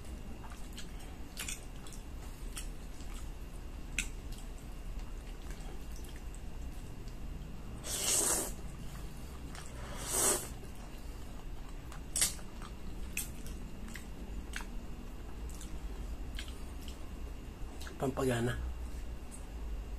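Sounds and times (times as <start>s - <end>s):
chewing with wet clicks: 0.0s - 7.6s, 8.6s - 9.8s, 10.5s - 18.0s, 18.9s - 19.6s
spaghetti slurping: 7.8s - 8.6s, 9.6s - 10.6s.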